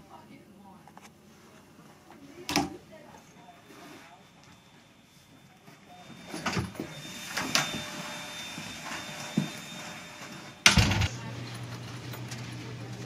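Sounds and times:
door thump: 0:10.7 - 0:11.1.

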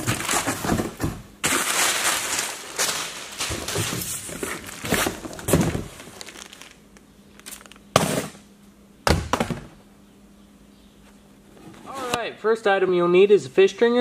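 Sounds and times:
cardboard box crinkling and rustling: 0:00.0 - 0:06.8
sharp knocks on box: 0:09.0 - 0:09.7.

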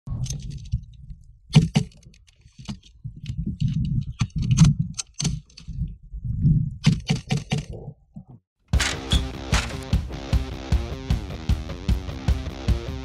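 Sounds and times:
wind on microphone: 0:02.7 - 0:07.1.

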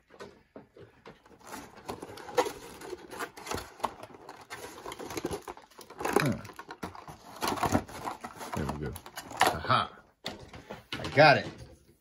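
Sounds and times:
plastic packaging crackling: 0:01.3 - 0:09.8.

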